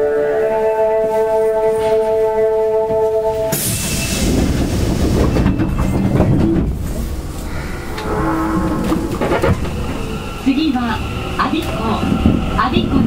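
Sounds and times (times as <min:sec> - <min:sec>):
subway train rumbling: 0:00.0 - 0:13.0.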